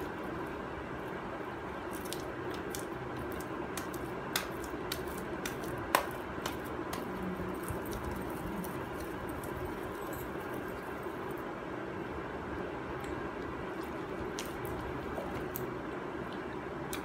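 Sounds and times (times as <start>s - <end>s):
hands kneading clay: 0.0s - 11.1s
background hum: 0.0s - 17.0s.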